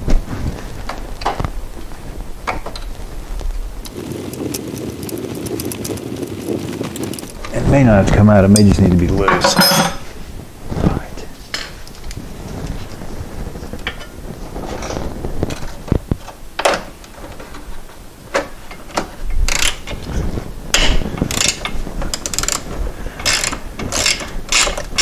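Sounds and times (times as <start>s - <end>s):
ratchet wrench clicking: 19.5s - 19.8s, 21.3s - 22.6s, 23.2s - 25.0s.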